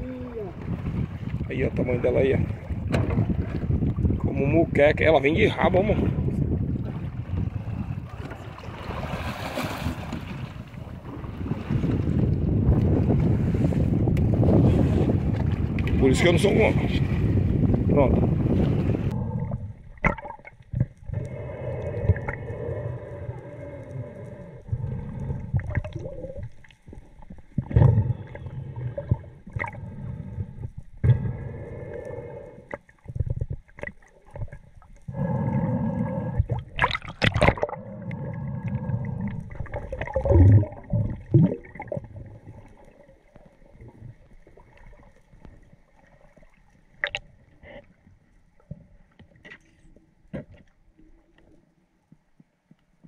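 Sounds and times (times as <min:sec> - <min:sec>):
water sloshing and gurgling: 0:00.0 - 0:53.0
loud splash: 0:08.8 - 0:10.2.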